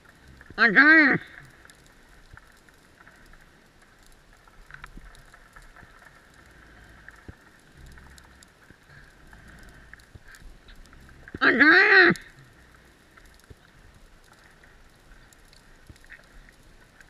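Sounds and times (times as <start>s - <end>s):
low hum: 0.0s - 17.0s
steady underwater hiss: 0.0s - 17.0s
underwater clicks and crackles: 0.0s - 17.0s.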